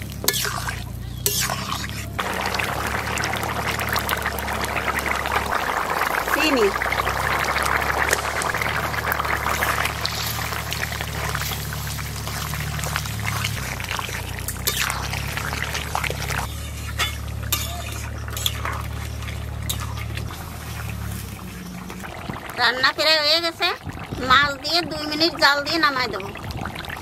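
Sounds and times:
curry bubbling in a wok: 0:00.0 - 0:27.0
metal spatula clinking on pan: 0:00.2 - 0:01.8, 0:16.5 - 0:18.9.

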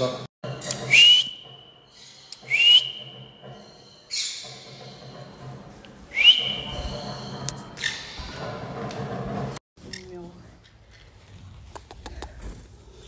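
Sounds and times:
person whistling: 0:00.8 - 0:01.4, 0:02.4 - 0:03.1, 0:06.1 - 0:07.0.

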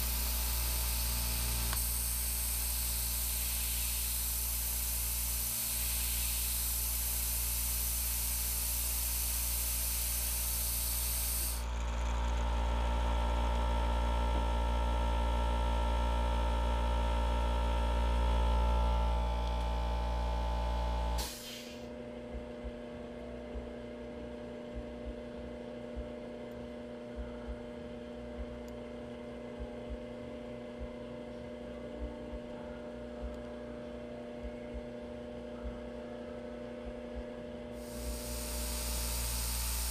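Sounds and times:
steady hiss: 0:00.0 - 0:11.6, 0:37.8 - 0:39.9
milling machine motor whining: 0:00.0 - 0:15.1, 0:37.8 - 0:39.9
electrical hum: 0:00.0 - 0:39.9.

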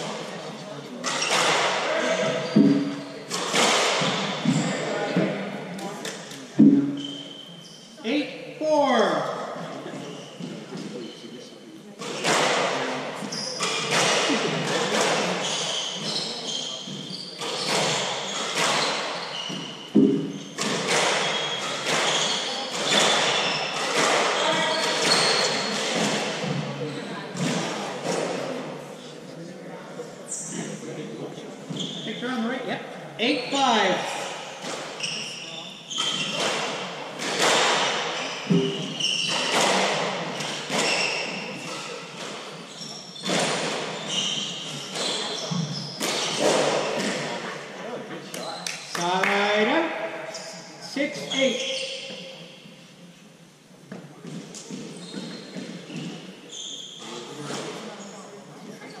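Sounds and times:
sneakers squeaking on court floor: 0:01.0 - 0:05.4, 0:06.0 - 0:08.1, 0:09.9 - 0:11.4, 0:12.0 - 0:28.3, 0:31.7 - 0:32.3, 0:34.4 - 0:47.4, 0:50.3 - 0:52.7, 0:54.2 - 0:59.0
squash ball hits: 0:02.6 - 0:04.6, 0:19.9 - 0:26.4.

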